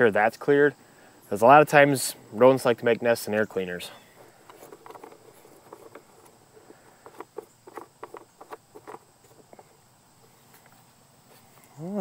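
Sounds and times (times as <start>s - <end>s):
plastic knobs clicking: 4.2s - 9.6s.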